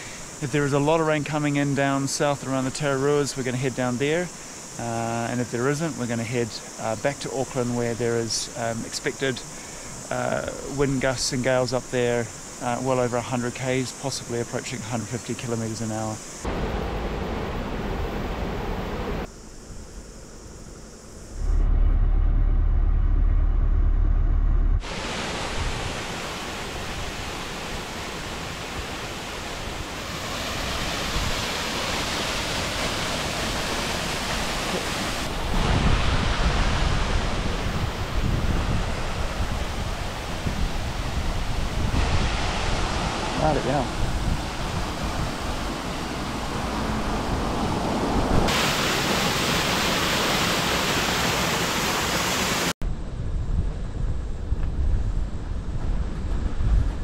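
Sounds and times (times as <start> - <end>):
storm wind and water rushing: 24.3 - 57.0
wind rumble on microphone: 32.7 - 48.6, 52.8 - 57.0.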